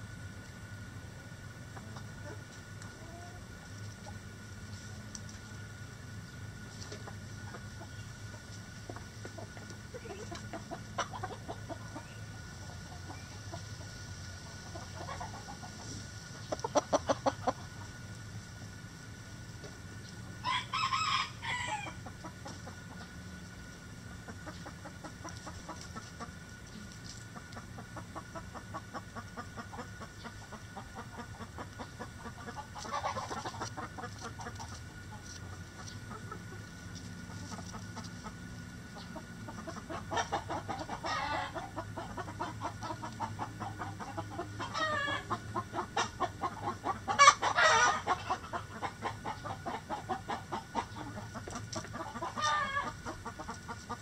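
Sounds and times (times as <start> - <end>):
hens clucking: 0.0 - 54.0
hen calling loudly: 39.7 - 50.0.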